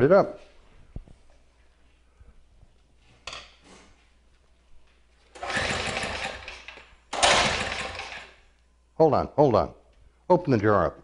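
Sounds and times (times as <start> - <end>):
recoil starter rope pull: 5.3 - 8.4
engine turning over: 5.4 - 8.4.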